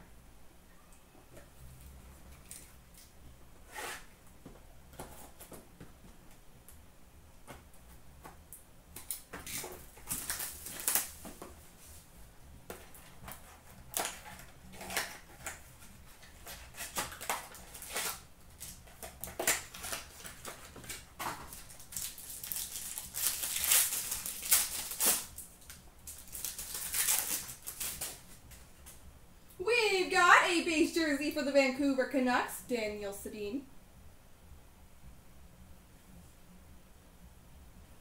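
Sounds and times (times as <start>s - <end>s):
card pack wrappers crinkling: 9.1s - 11.4s, 12.8s - 28.6s.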